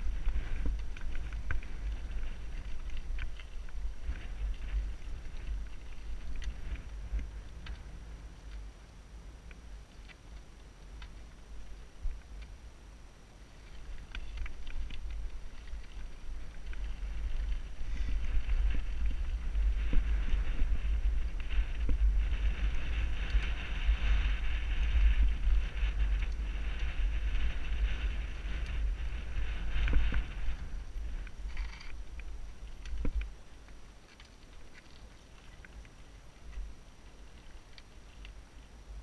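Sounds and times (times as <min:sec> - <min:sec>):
wind buffeting microphone: 0:00.0 - 0:08.8, 0:13.7 - 0:33.5.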